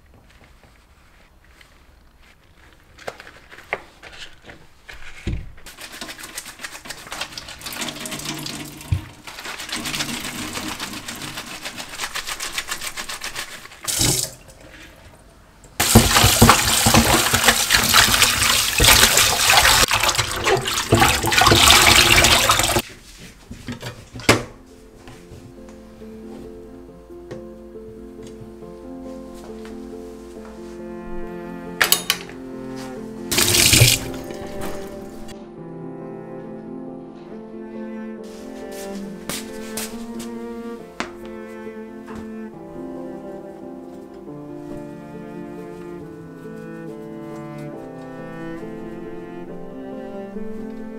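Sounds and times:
dishcloth rubbing and squelching: 0.3s - 24.2s, 32.7s - 35.4s, 38.2s - 42.4s, 43.9s - 49.4s
tap running: 5.3s - 14.5s, 15.7s - 22.8s, 33.3s - 35.1s.

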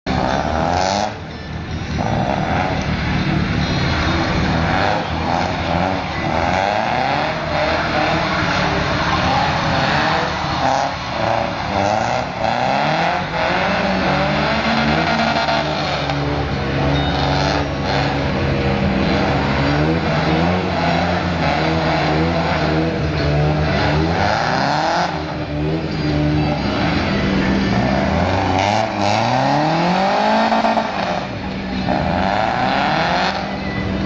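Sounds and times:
car engine revving hard: 0.1s - 1.3s, 1.9s - 34.0s.

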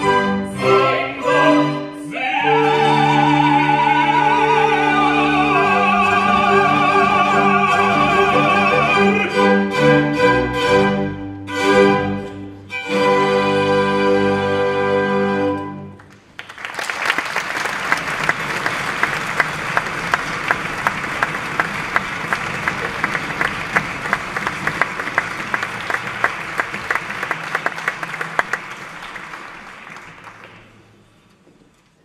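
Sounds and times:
audience applauding: 16.0s - 31.2s.

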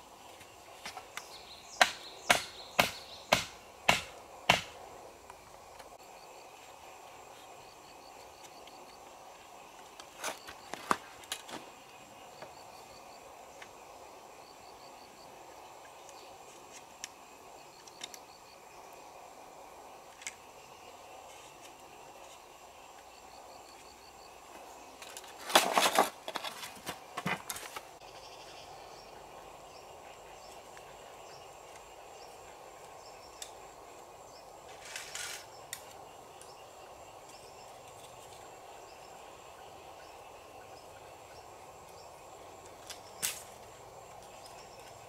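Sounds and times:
bamboo poles knocking and rattling: 25.0s - 27.9s.

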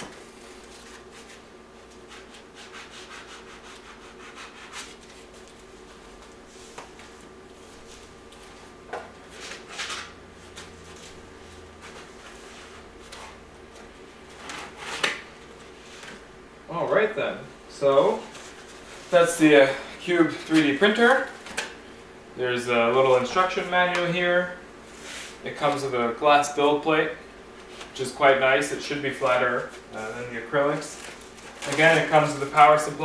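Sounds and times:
faint steady hum: 0.0s - 33.0s
foam packaging rubbing and scraping: 2.0s - 5.3s, 30.0s - 32.9s.

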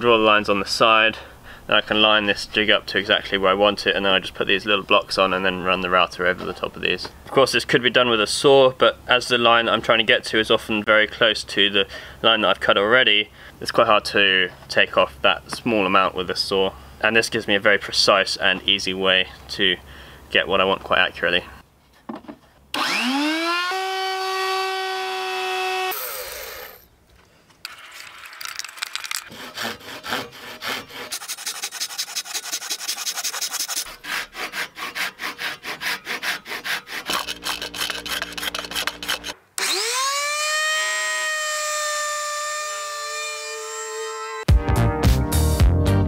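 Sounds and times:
electric router whining: 22.8s - 26.8s, 39.0s - 44.5s
handsaw cutting wood: 22.8s - 26.8s, 29.2s - 44.5s.

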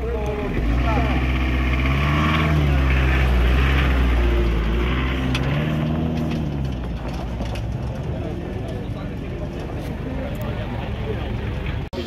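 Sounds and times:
engine revving hard: 0.4s - 6.7s.

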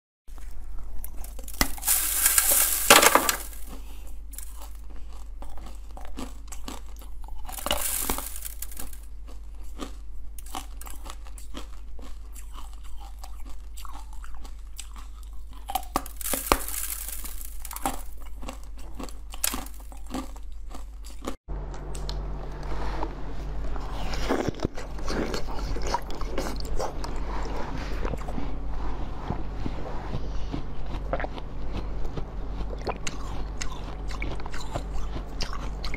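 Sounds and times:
chewing crunchy ice: 0.3s - 22.2s, 23.6s - 35.9s
dull crunching of ice block: 1.2s - 3.8s, 7.4s - 9.0s, 15.6s - 20.3s.

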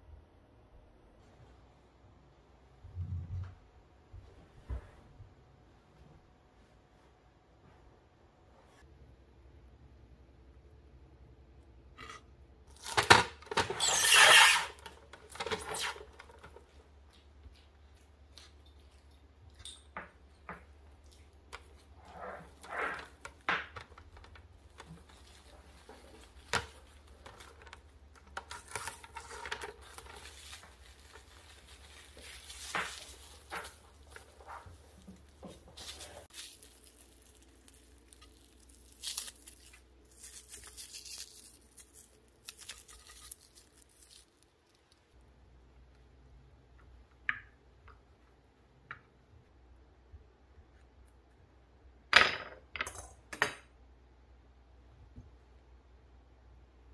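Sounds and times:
cling film rustling: 21.2s - 45.1s.

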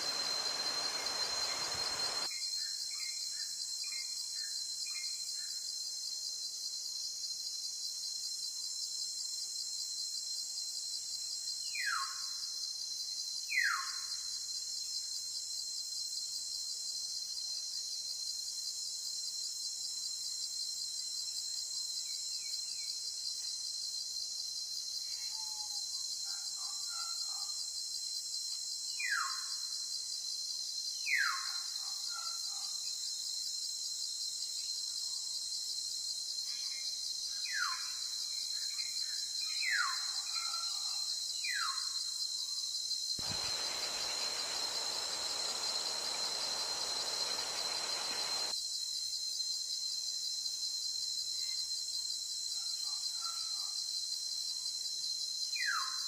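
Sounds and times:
falling whistled bird calls: 0.0s - 2.3s, 43.2s - 48.5s
rushing noise: 0.0s - 2.3s, 43.2s - 48.5s
high insect chorus: 0.0s - 56.0s.

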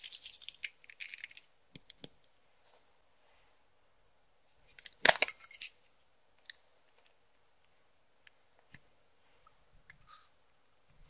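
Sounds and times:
small hard objects clattering: 0.0s - 1.5s.

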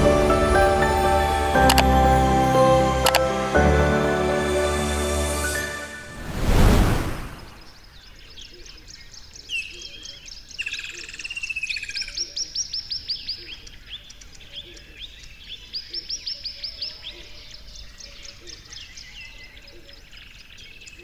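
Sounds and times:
falling whistled bird notes: 5.3s - 7.8s
songbirds singing: 7.5s - 21.0s.

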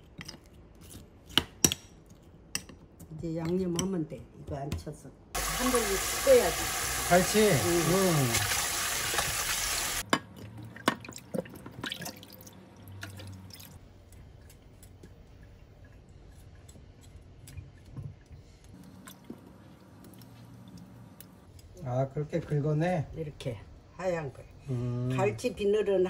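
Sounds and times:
water dripping and splashing: 5.4s - 13.8s.

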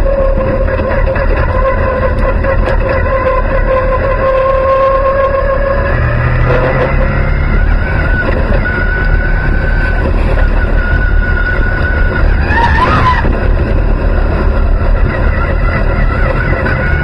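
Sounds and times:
brief wavering squeal: 0.0s - 13.4s
race car engine rumbling: 0.0s - 17.0s
steady engine whine: 0.0s - 17.0s.

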